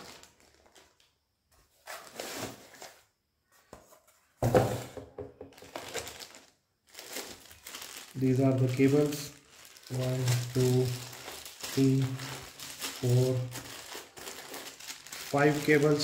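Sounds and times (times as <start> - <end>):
plastic wrapping crinkling: 0.0 - 1.2, 5.5 - 16.0
cardboard rustling and scraping: 1.6 - 5.0.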